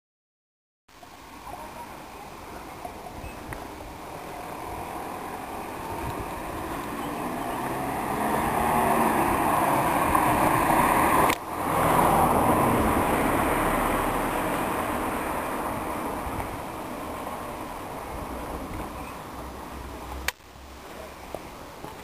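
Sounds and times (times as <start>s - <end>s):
car passing: 4.0s - 20.7s.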